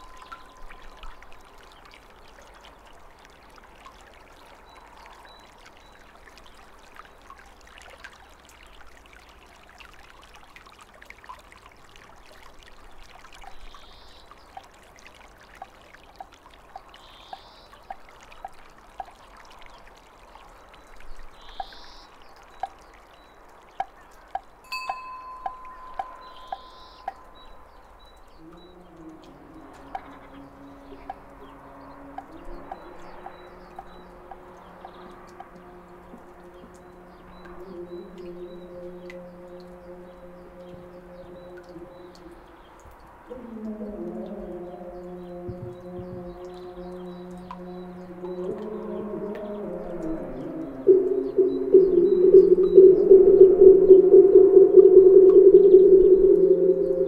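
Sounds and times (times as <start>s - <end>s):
trickling water: 0.0s - 57.0s
small bell ringing: 24.6s - 27.2s.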